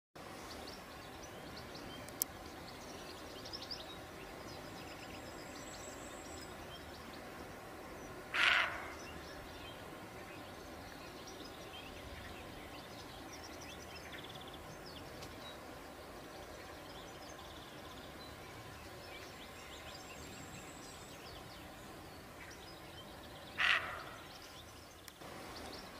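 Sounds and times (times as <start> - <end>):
open-air hush: 0.2 - 25.9
deer barking: 8.3 - 9.0, 23.6 - 24.2.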